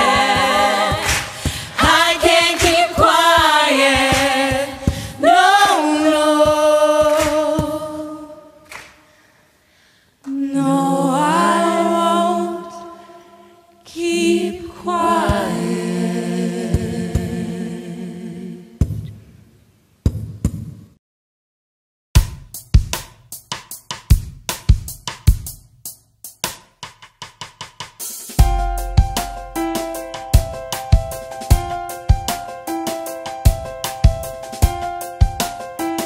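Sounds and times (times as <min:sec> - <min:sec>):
voices singing a cappella: 0:00.0 - 0:08.8, 0:10.3 - 0:18.9.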